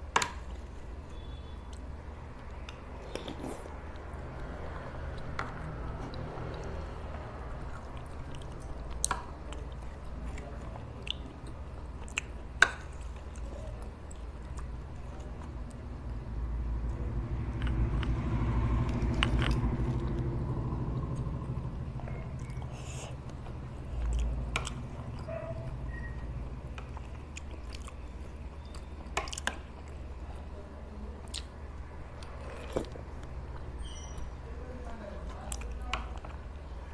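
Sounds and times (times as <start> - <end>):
chewing and mouth sounds: 1.7 - 15.9, 17.5 - 30.5, 31.2 - 33.7.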